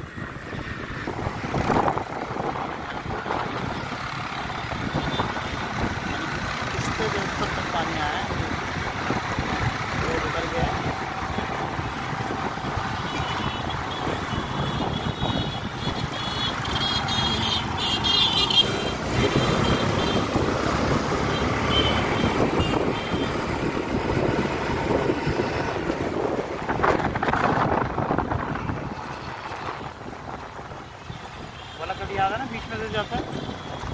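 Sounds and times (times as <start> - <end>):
engine and tyre rumble: 0.0 - 33.9
motorcycle passing close: 16.4 - 26.2.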